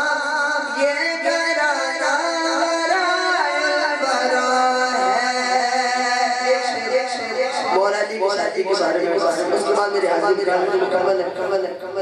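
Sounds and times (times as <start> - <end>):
man singing into a microphone: 0.0 - 10.4.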